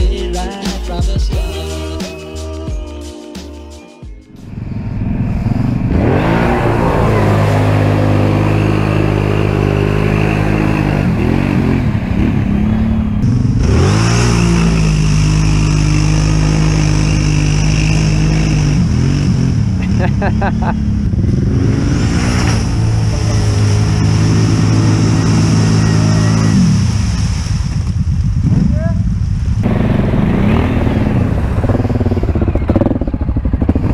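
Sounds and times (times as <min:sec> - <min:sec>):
atv engines revving: 0:04.3 - 0:33.9
churning through mud: 0:13.2 - 0:20.8.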